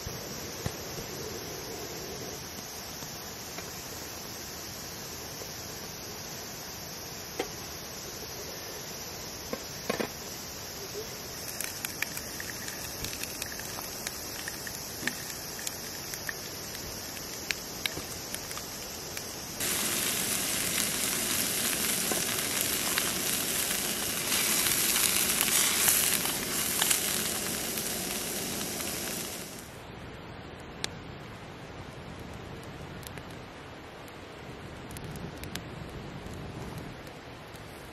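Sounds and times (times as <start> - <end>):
stove hiss: 0.0 - 29.9
peppers sizzling in a frying pan: 6.6 - 29.8
small ticks and crackles: 9.0 - 29.7, 32.0 - 37.9.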